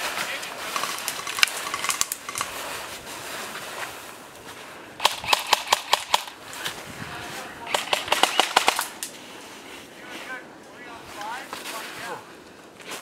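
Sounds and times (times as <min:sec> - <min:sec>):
airsoft gun shots: 0:05.0 - 0:06.3, 0:07.7 - 0:08.9.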